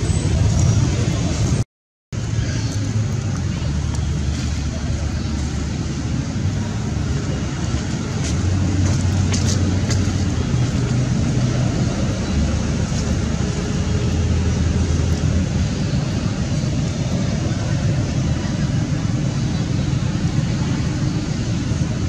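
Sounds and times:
low rumbling background noise: 0.0s - 1.6s, 2.2s - 22.0s.

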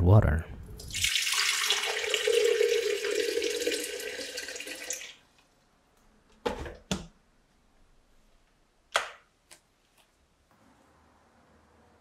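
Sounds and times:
water pouring into kettle: 0.8s - 5.2s.

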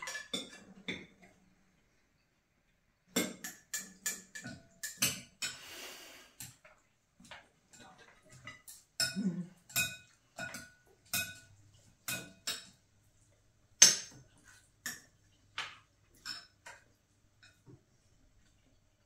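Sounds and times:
utensils clinking against glass bowls: 0.0s - 1.1s, 7.7s - 12.8s, 16.2s - 16.8s.

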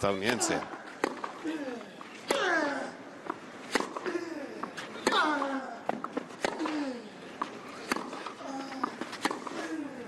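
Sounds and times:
racket hitting tennis ball: 0.2s - 1.4s, 2.2s - 9.8s
tennis ball bouncing: 0.2s - 1.4s, 3.2s - 9.7s.

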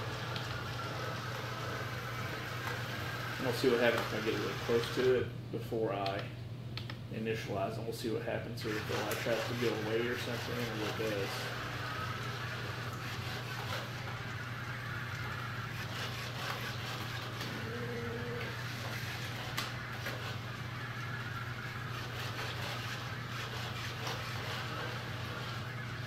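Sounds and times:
robot vacuum whirring: 0.0s - 5.1s, 8.6s - 26.0s
sharp click: 6.0s - 7.0s.

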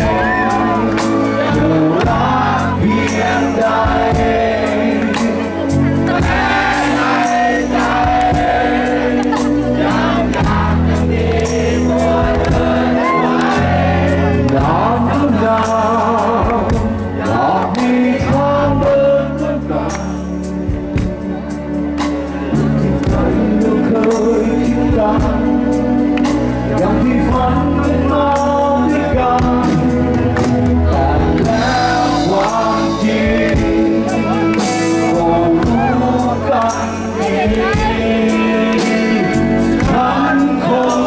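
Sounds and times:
man singing lead vocal: 0.0s - 20.9s, 22.5s - 41.0s
live rock band playing: 0.0s - 41.0s.

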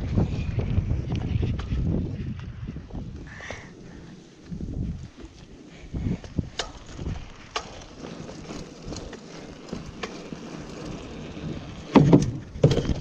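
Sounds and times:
bicycle tyres rolling on concrete: 0.0s - 13.0s
bike clicks and knocks: 6.1s - 13.0s.

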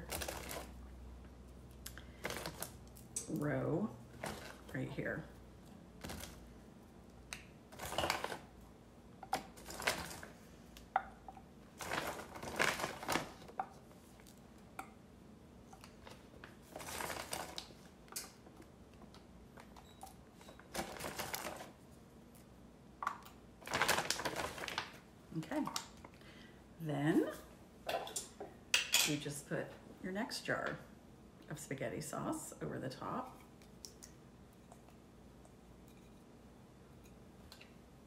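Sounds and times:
plastic bag rustling: 0.0s - 0.8s, 4.1s - 4.8s, 11.7s - 13.6s, 16.0s - 17.9s, 20.6s - 21.8s, 23.6s - 25.0s.

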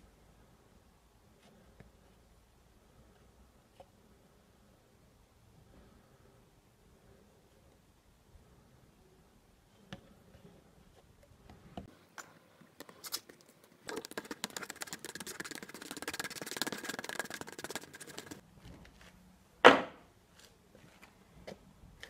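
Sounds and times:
sharp knock: 19.6s - 20.0s.

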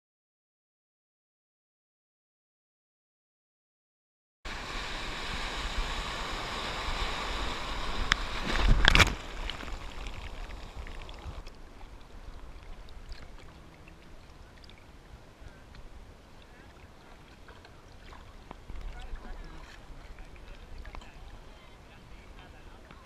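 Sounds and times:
loud water splash: 4.5s - 11.5s
surf water rushing and splashing: 4.5s - 23.0s
water lapping and hiss: 4.5s - 23.0s.

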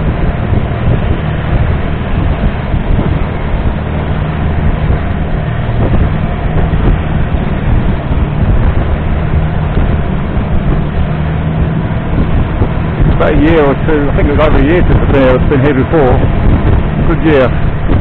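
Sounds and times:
boat diesel engine drone: 0.0s - 18.0s
rushing noise: 0.0s - 18.0s.

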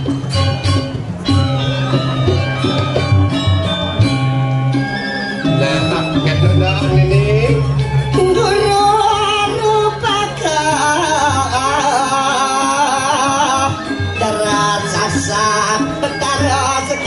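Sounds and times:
gamelan accompaniment: 0.0s - 17.0s
high voice singing: 5.6s - 17.0s.

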